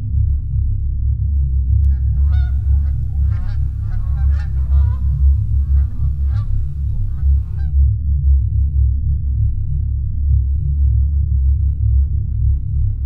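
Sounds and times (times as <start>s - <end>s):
low rumble: 0.0s - 13.0s
geese honking: 1.9s - 7.7s.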